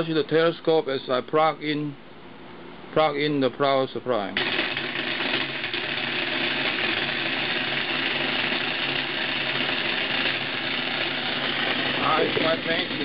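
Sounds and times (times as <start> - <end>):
power drill motor running: 4.4 - 13.0.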